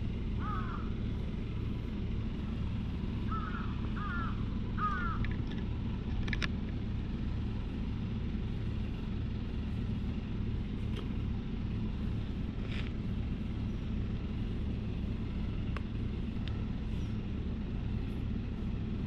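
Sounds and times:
steady low rumble: 0.0 - 19.0
crow cawing: 0.4 - 1.0, 3.3 - 5.3.

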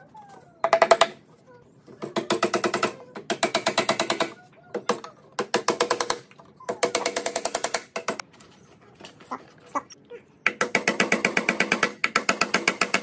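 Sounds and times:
hammer tapping nails: 5.0 - 8.2, 10.4 - 13.0.

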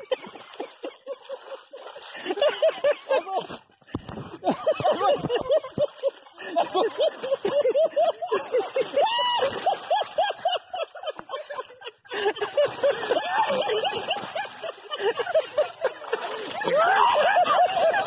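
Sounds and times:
person laughing hard: 4.4 - 18.0.

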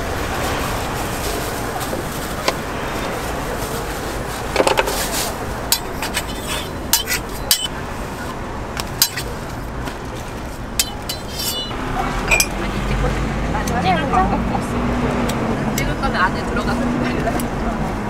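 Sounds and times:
metal utensils clinking: 5.7 - 12.6.

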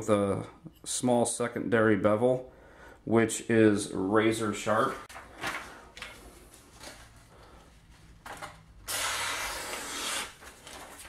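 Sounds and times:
paper handling: 4.8 - 8.7, 9.7 - 11.0.

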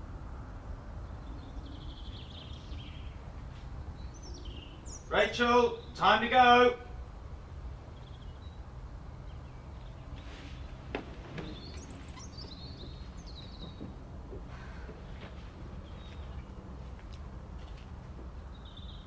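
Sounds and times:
steady low hum: 0.0 - 19.0
faint bird chirps: 8.0 - 13.9.

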